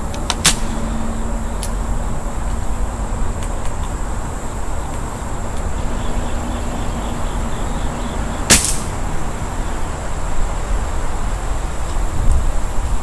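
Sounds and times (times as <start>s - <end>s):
air rifle shot: 8.5s - 8.9s.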